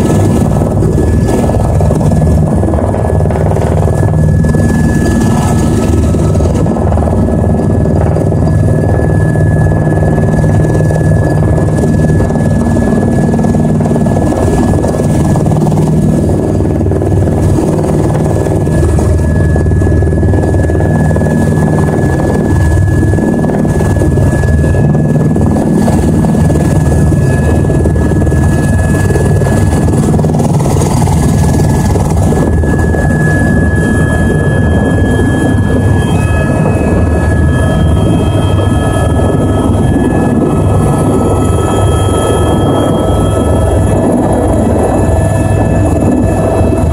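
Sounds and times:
helicopter rotor beat: 0:00.0 - 0:46.9
turbine whine: 0:00.0 - 0:46.9.

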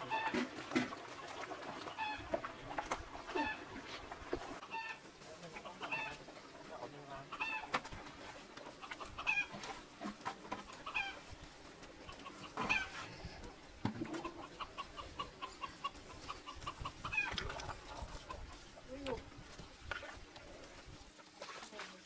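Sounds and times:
farm animal calls: 0:00.0 - 0:00.6, 0:01.8 - 0:03.9, 0:04.6 - 0:19.1.

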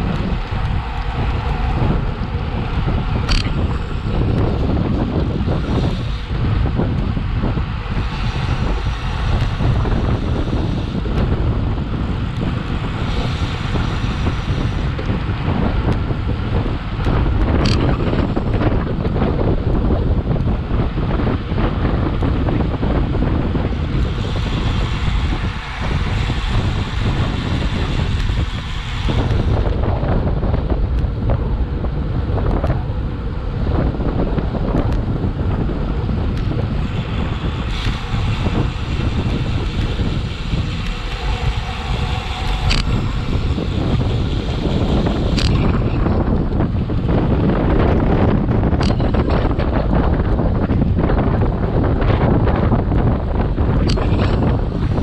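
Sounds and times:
wind buffeting microphone: 0:00.0 - 0:55.0
sharp clicks: 0:03.3 - 0:03.6, 0:40.8 - 0:43.0, 0:45.4 - 0:45.8.

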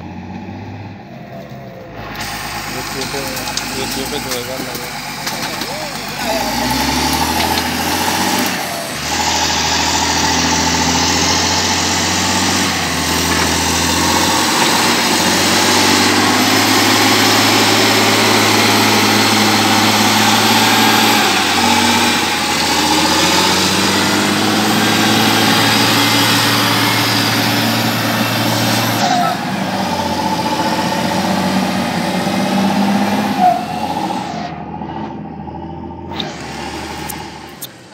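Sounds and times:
diesel engine running: 0:00.0 - 0:37.9.

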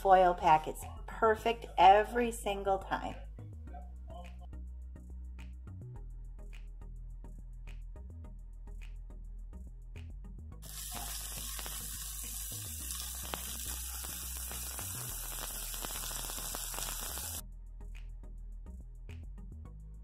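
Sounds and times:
soft background music: 0:00.0 - 0:20.0
vegetables sizzling in oil: 0:10.6 - 0:17.4.

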